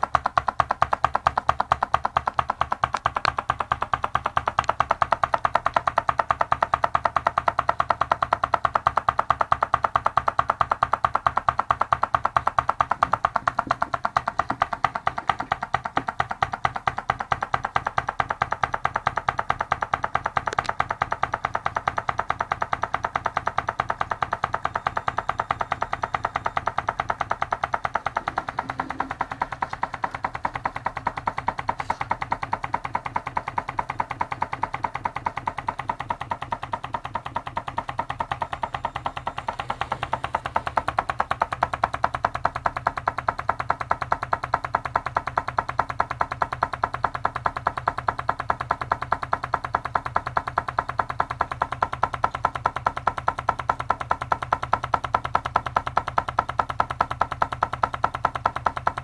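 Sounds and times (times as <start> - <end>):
small engine ticking rapidly: 0.0 - 59.0.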